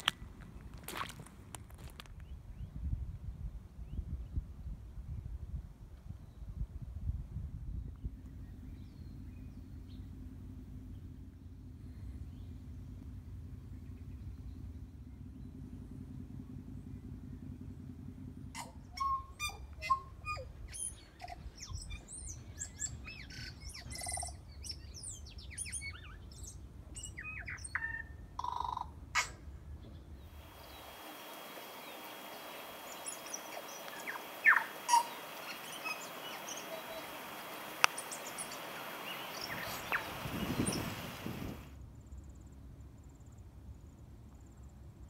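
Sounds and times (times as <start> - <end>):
bird singing: 18.6 - 41.6
steady hiss: 30.3 - 41.7.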